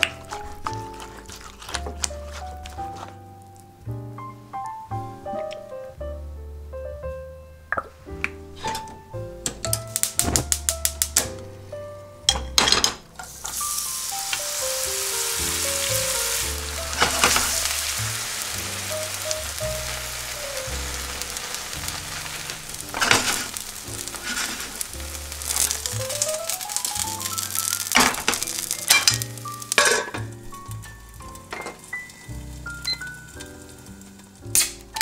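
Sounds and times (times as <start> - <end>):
batter sizzling in hot oil: 0.0 - 3.2, 9.6 - 11.3, 13.2 - 35.0.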